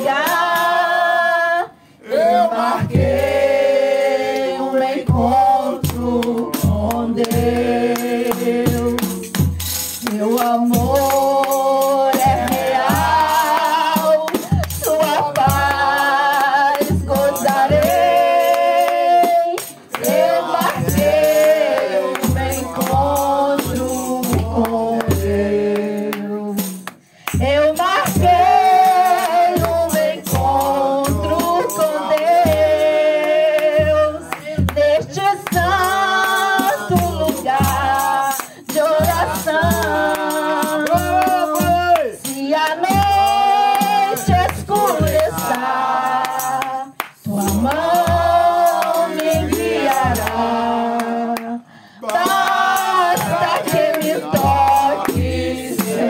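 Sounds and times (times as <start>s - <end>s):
shaken rattle percussion: 0.0s - 1.2s, 4.2s - 56.0s
woman singing a hymn: 0.0s - 3.5s, 4.4s - 56.0s.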